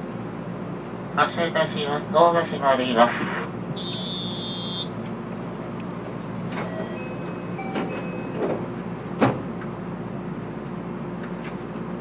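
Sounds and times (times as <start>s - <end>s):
standing train hum: 0.0s - 12.0s
train door warning tone: 3.8s - 5.1s, 6.5s - 8.9s.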